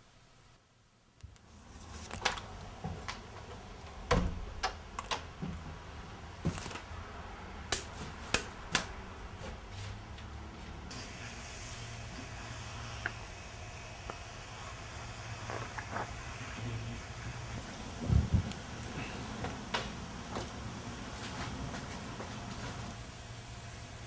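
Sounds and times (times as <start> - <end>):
soft hiss: 0.0 - 2.8
steady low hum: 0.0 - 24.0.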